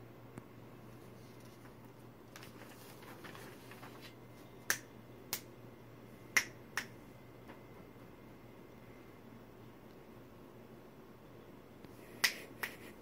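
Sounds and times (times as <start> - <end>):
paper rustling: 0.9 - 4.2
finger snaps: 4.7 - 5.5, 6.3 - 7.0, 11.8 - 12.9.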